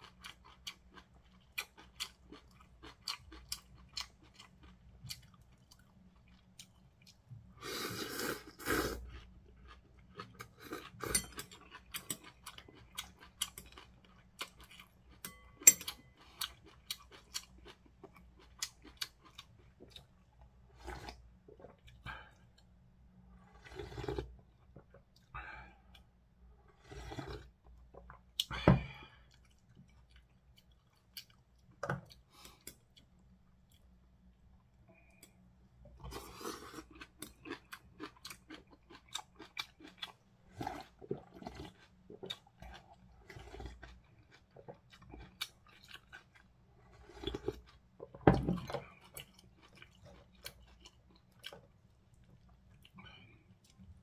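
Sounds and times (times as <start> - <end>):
chewing noodles: 0.0 - 7.2, 7.8 - 22.7, 36.0 - 54.0.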